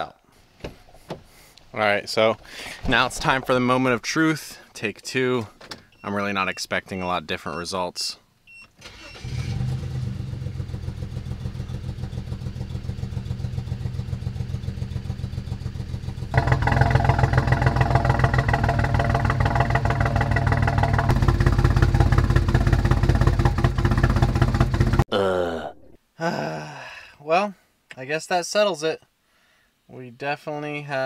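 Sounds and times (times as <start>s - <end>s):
car engine running rough: 9.5s - 25.0s.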